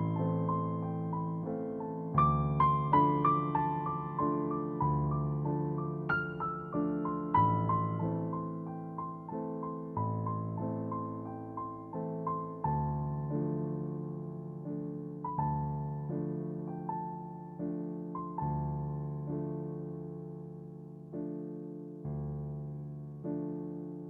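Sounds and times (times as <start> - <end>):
calm piano music: 0.0 - 24.0.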